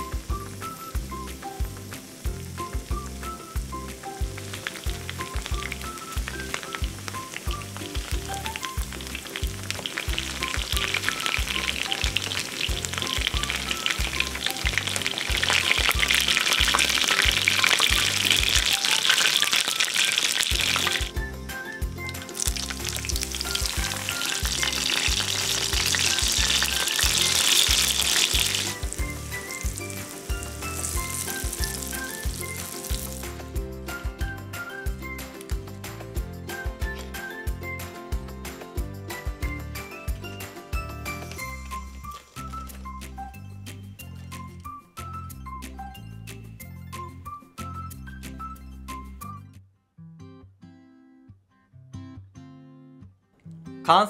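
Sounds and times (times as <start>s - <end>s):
food sizzling in oil: 0.0s - 33.5s
background music with steady beat: 0.0s - 49.6s.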